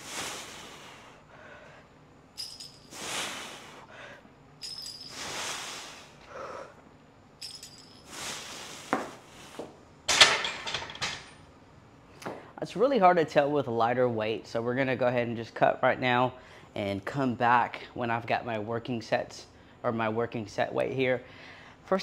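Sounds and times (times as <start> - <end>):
chains clinking: 2.4 - 3.1, 4.6 - 5.3, 7.4 - 8.2
sharp breath: 5.0 - 6.8
barbell clanking in rack: 10.1 - 11.4.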